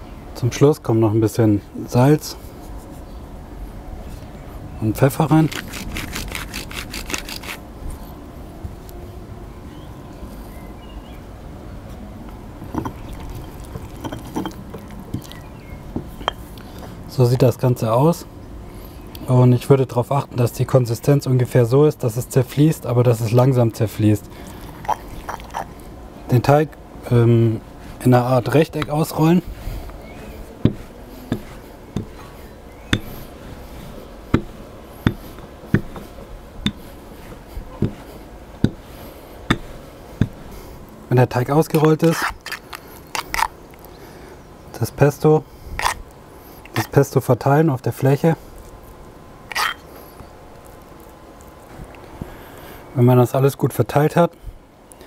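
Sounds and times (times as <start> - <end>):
pestle grinding in stone mortar: 5.2 - 7.6, 12.6 - 16.4, 24.4 - 25.7, 27.9 - 40.5, 41.7 - 43.5
stone-on-stone knocks: 34.3 - 36.0
rolling pin knocking on board: 35.8 - 36.0.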